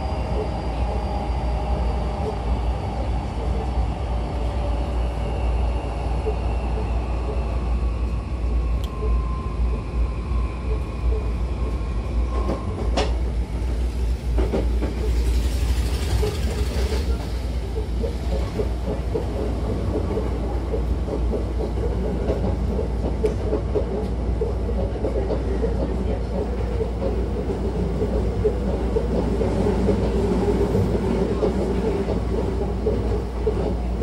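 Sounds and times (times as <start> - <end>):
train running gear rumble: 0.0 - 34.0.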